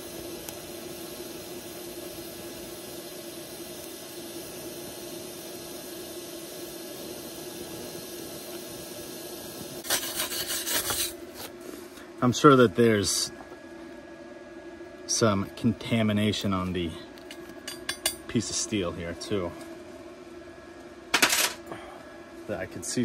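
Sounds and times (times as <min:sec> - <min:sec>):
welding arc hissing: 0:00.0 - 0:11.9
rough rubbing and scraping: 0:09.8 - 0:11.5.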